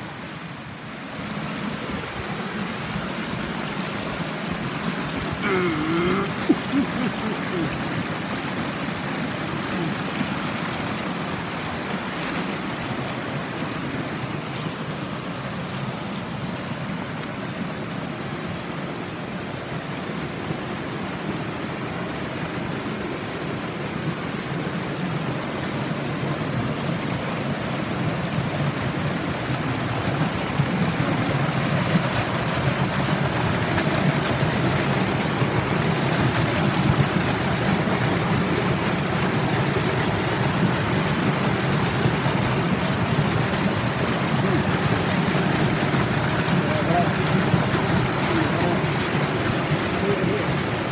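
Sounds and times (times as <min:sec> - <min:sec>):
waterfall rushing: 0:00.0 - 0:50.9.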